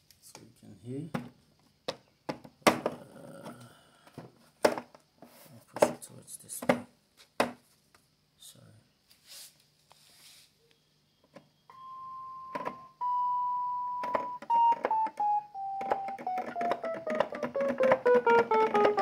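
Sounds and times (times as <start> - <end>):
keyboard notes: 11.7 - 19.0.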